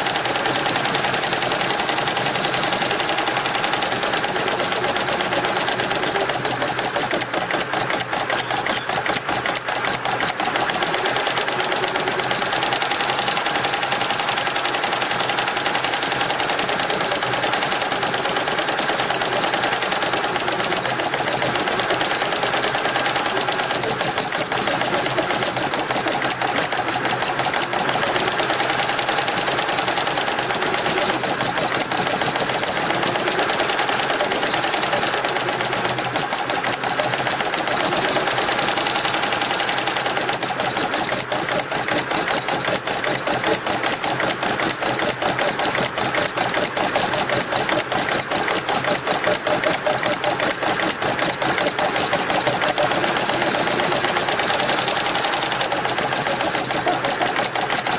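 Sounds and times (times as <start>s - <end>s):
embroidery machine needles clattering: 0.0s - 57.9s.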